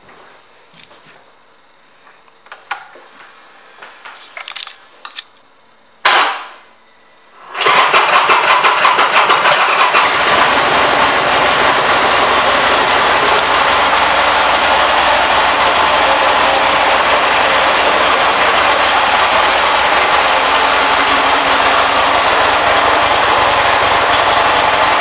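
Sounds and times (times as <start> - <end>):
loud engine burst: 7.6 - 25.0
motorcycle engine running: 7.8 - 25.0.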